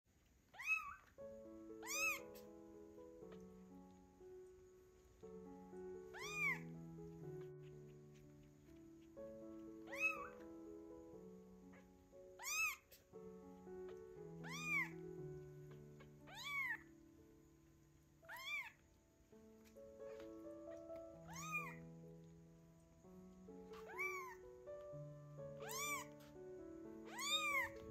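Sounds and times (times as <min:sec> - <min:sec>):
kitten meowing loudly: 0:00.6 - 0:01.0, 0:01.8 - 0:02.2, 0:06.1 - 0:06.6, 0:09.9 - 0:10.4, 0:12.4 - 0:12.9, 0:14.4 - 0:15.0, 0:16.3 - 0:16.8, 0:18.2 - 0:18.8, 0:21.3 - 0:21.8, 0:23.8 - 0:24.4, 0:25.6 - 0:26.1, 0:27.1 - 0:27.8
background music with held notes: 0:00.6 - 0:27.9.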